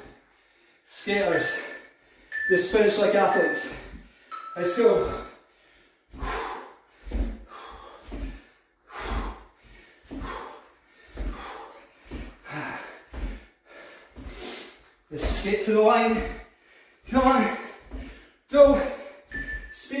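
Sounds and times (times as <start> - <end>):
man breathing heavily: 0.0 - 2.4, 3.1 - 19.8.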